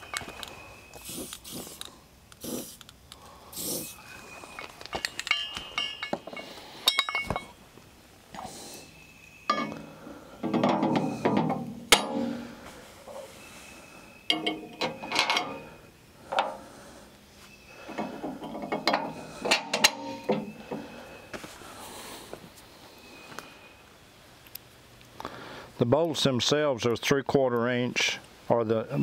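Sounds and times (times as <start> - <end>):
metal clinking and scraping: 3.8 - 7.6, 9.4 - 13.4, 14.3 - 16.6, 17.8 - 20.9.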